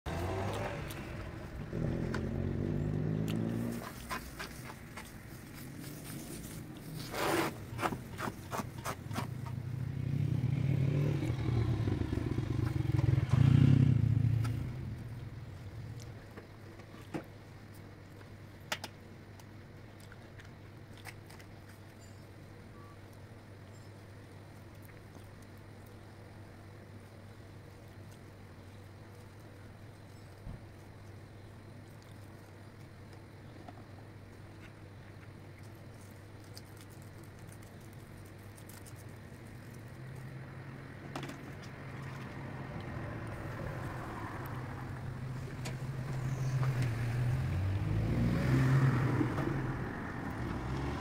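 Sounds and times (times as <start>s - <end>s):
passing vehicle engine: 0.1s - 8.0s, 8.9s - 16.1s, 40.0s - 51.0s.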